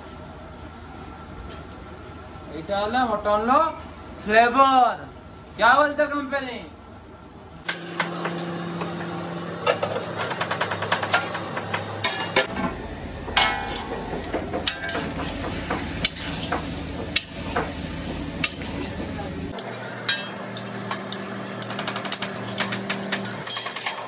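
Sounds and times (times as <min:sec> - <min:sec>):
steel utensils clanking: 0:09.6 - 0:12.6, 0:13.3 - 0:17.8, 0:18.4 - 0:24.0.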